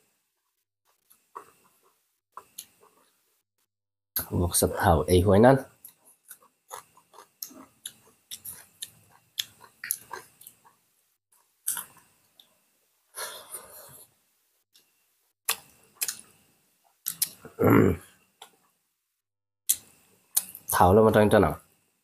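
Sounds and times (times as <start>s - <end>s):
chewing and lip-smacking: 5.8s - 10.8s, 15.5s - 16.3s, 17.0s - 17.4s.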